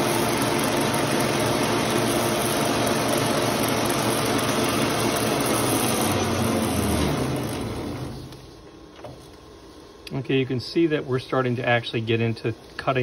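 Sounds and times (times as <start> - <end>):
metal lathe motor hum: 0.0 - 8.7.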